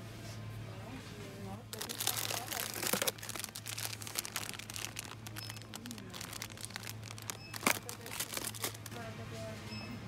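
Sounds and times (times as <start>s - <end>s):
plastic wrapper crinkling: 1.7s - 9.0s.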